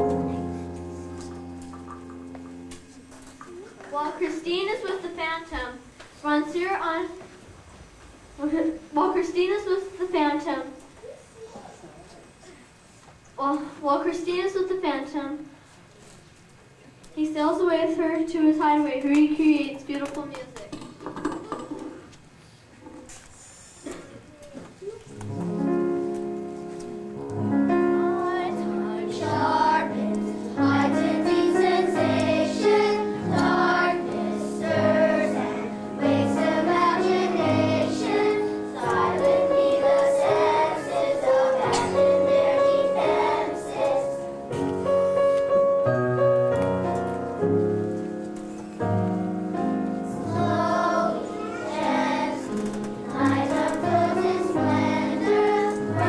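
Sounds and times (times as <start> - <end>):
instrumental accompaniment: 0.0 - 4.5, 25.1 - 56.0
children's choir singing: 27.6 - 44.6, 50.0 - 56.0.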